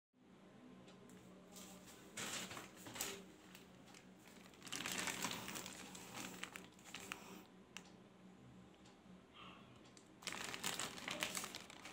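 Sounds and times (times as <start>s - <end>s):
parcel wrapping crinkling: 1.6s - 7.5s, 10.2s - 11.9s.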